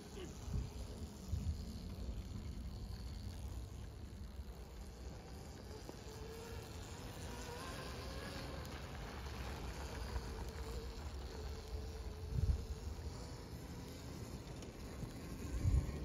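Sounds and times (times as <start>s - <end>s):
electric motor whine: 0.0s - 16.0s
wind on microphone: 11.8s - 13.1s, 15.4s - 16.0s.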